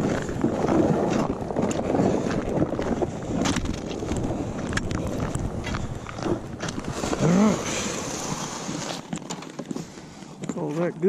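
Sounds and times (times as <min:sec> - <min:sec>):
wind on microphone: 0:00.0 - 0:09.8
footsteps crunching on snowy ice: 0:00.0 - 0:11.0.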